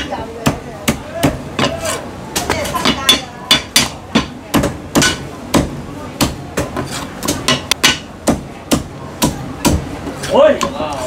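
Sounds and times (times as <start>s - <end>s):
cleaver chopping on wooden block: 2.8s - 9.8s.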